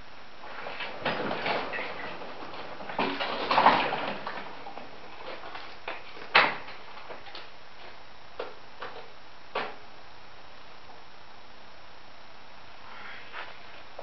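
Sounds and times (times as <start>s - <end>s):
rustling: 0.0s - 9.9s, 12.8s - 14.0s.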